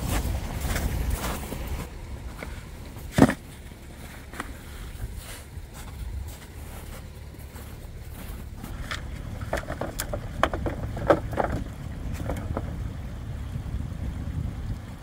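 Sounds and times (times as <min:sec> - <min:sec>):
steady low rumble: 0:00.0 - 0:15.0
plastic boards clattering and scraping: 0:02.4 - 0:04.6, 0:08.8 - 0:12.7.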